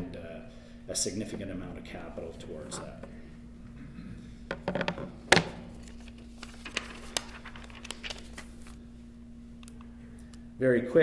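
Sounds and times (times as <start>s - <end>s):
steady low hum: 0.0s - 11.0s
paper rustling: 5.7s - 8.8s.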